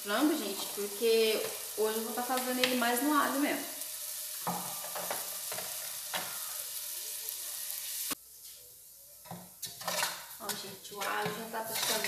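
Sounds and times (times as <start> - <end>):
garlic sizzling in hot fat: 0.0 - 12.0.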